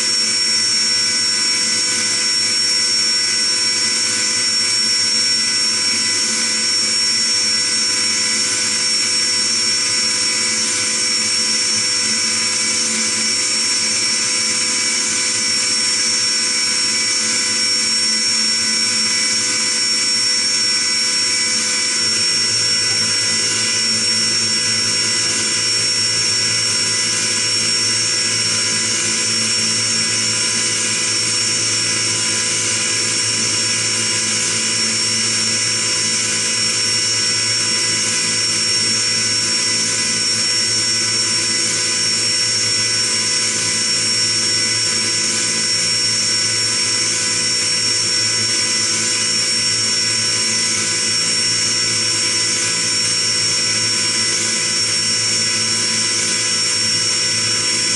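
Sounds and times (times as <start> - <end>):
spindle whine: 12.1 - 57.9.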